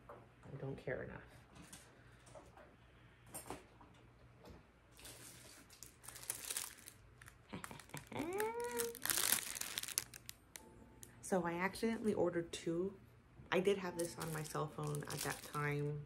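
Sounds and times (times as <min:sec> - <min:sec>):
plastic crinkling: 0:04.9 - 0:11.1, 0:14.0 - 0:15.9.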